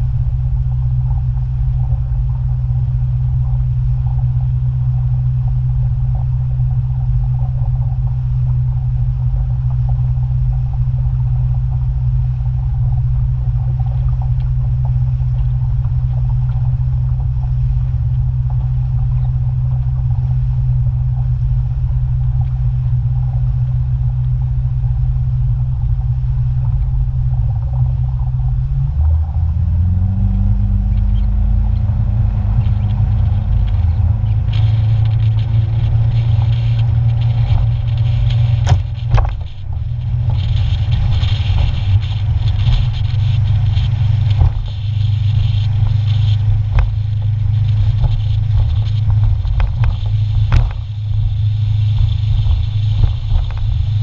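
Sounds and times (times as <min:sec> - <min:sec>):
motorboat engine running: 0:00.0 - 0:54.0
wind and water rushing: 0:23.9 - 0:54.0.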